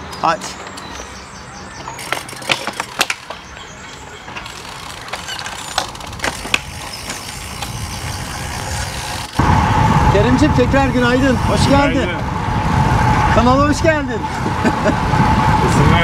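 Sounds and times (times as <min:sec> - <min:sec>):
bike cleats clicking into pedals: 0:01.8 - 0:09.4
wind rumble on microphone: 0:05.9 - 0:16.0.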